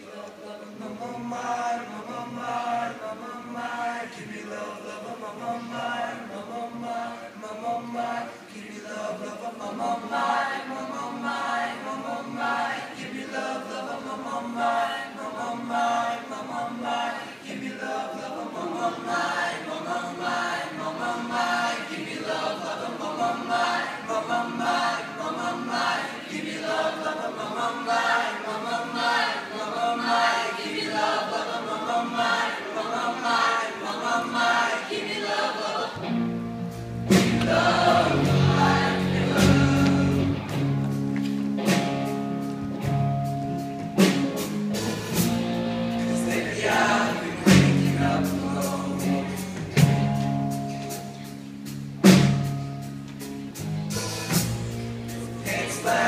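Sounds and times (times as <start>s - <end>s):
boys' choir singing: 0.0s - 36.1s, 37.1s - 40.7s, 45.9s - 50.0s, 55.2s - 56.0s.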